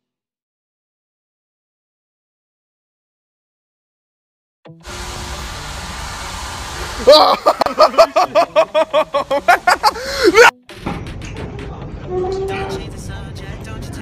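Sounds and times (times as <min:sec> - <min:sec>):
steady hiss: 0:04.8 - 0:10.4
person giving high-pitched cries: 0:09.9 - 0:10.6.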